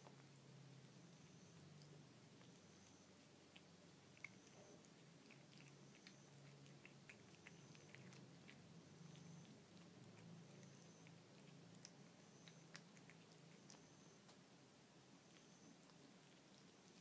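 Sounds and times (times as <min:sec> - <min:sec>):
cat chewing and licking: 0:00.0 - 0:17.0.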